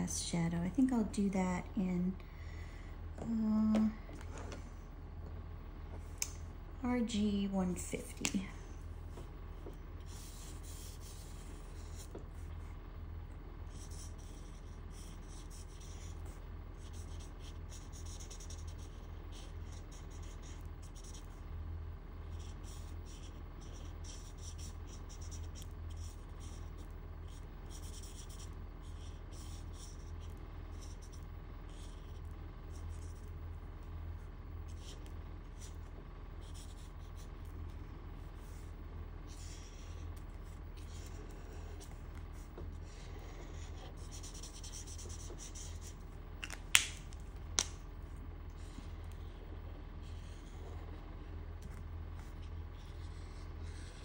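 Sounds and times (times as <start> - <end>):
low steady hum: 0.0 - 54.0
marker scratching on paper: 10.0 - 12.2, 13.7 - 21.4, 22.3 - 33.3, 34.7 - 38.7, 39.3 - 46.0, 52.2 - 54.0.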